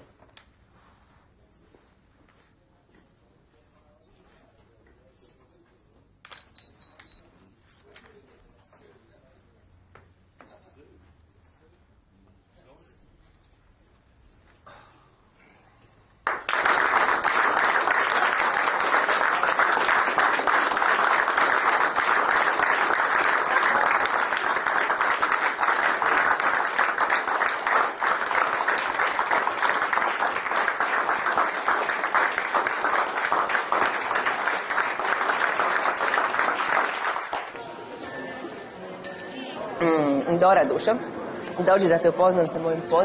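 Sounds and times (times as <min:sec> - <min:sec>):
crowd applauding: 0:16.2 - 0:38.6.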